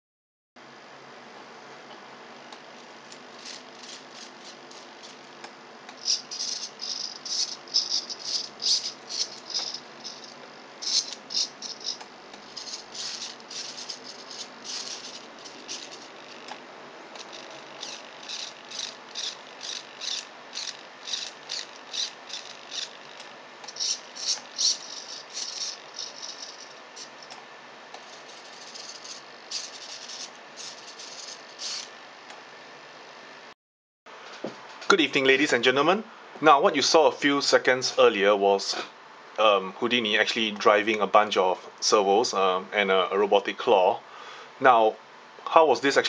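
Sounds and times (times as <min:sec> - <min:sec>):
servos whirring in short bursts: 0:17.2 - 0:27.3.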